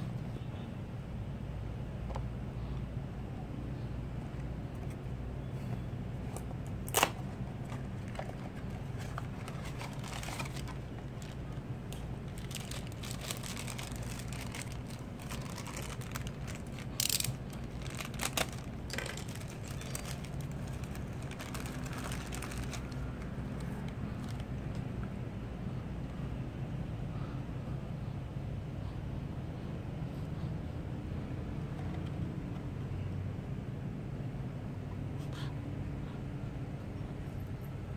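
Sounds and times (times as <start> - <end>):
steady low hum: 0.0 - 37.9
foil bag crinkling and tearing: 6.8 - 24.7.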